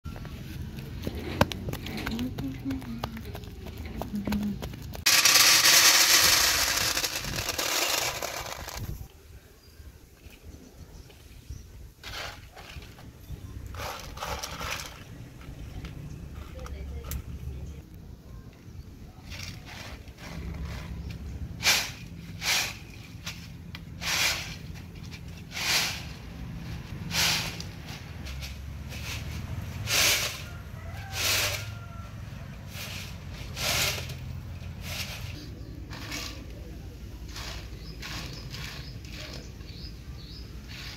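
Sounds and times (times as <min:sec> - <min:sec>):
beans rattling on metal tray: 0:05.1 - 0:09.0, 0:13.7 - 0:15.4, 0:21.6 - 0:30.4, 0:32.7 - 0:36.6, 0:37.2 - 0:39.5.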